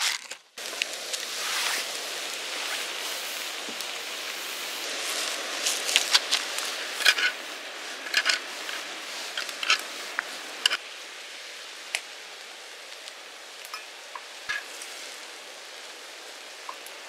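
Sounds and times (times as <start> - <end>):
fire crackling: 0.0 - 17.0
noodles sizzling and bubbling: 0.0 - 17.0
metal tongs clicking on griddle: 9.4 - 9.8.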